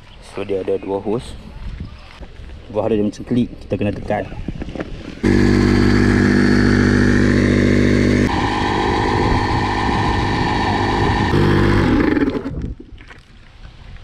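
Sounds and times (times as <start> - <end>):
electric air pump running: 5.2 - 12.6.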